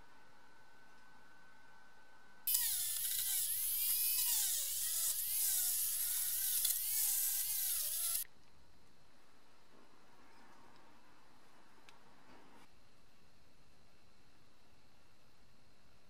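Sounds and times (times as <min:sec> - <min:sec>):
rotary tool wire brush on metal: 0:02.5 - 0:08.2.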